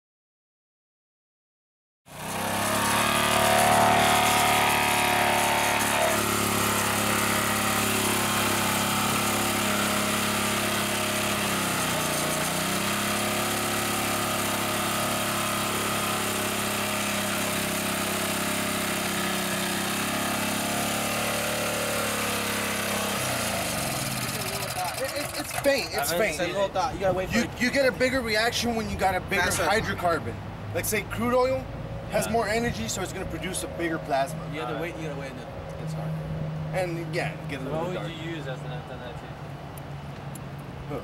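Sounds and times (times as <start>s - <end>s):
small engine running: 2.1s - 26.7s.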